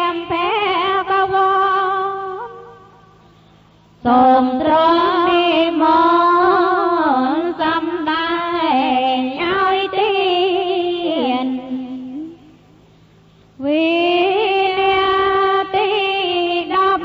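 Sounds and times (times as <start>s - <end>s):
person chanting: 4.1s - 12.5s.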